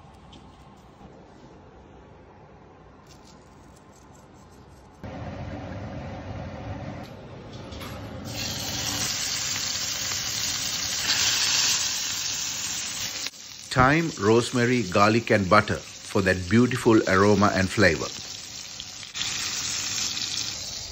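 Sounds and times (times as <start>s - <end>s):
stove rushing noise: 5.0s - 20.9s
steak sizzling in skillet: 8.3s - 20.9s.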